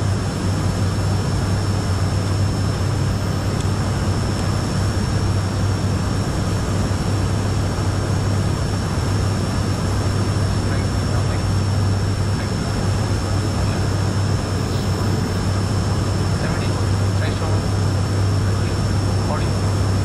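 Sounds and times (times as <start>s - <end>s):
turboprop engines low hum: 0.0s - 20.0s
thin high whine: 10.4s - 19.7s.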